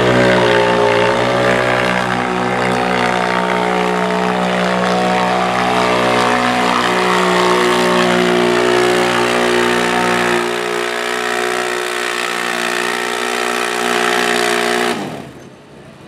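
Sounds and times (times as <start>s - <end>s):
engine running at high revs: 0.0s - 15.4s.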